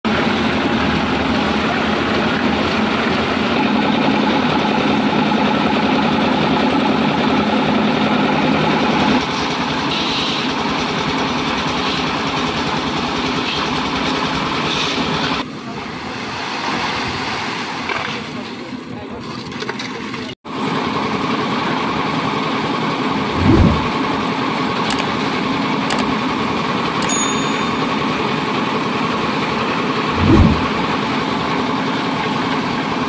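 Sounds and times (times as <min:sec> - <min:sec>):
concrete mixer running: 0:20.5 - 0:33.0.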